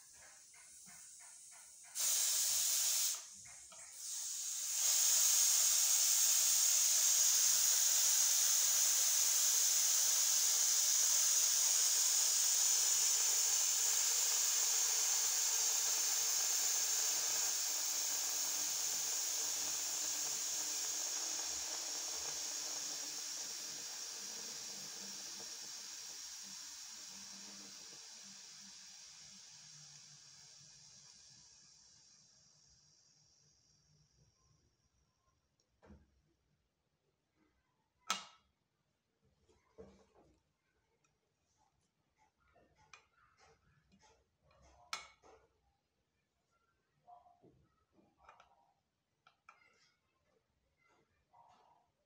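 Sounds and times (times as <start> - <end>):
pressure cooker steam hissing: 0.0 - 33.8.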